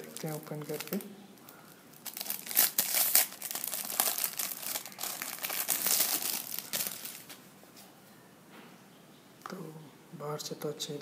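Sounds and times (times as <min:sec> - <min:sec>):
plastic packaging crinkling: 0:00.0 - 0:07.4.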